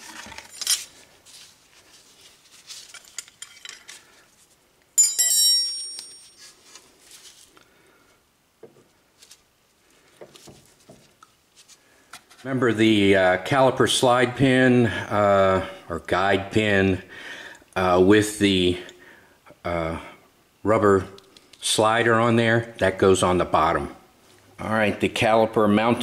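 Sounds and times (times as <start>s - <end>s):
ringing metal clank: 5.0s - 6.4s.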